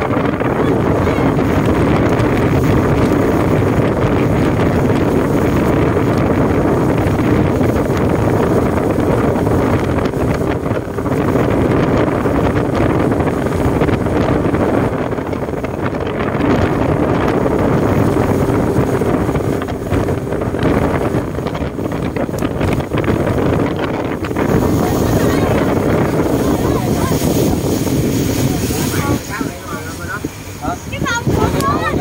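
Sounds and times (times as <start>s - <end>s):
boat motor running: 0.0s - 32.0s
water rushing along hull: 0.0s - 32.0s
wind buffeting microphone: 0.0s - 32.0s.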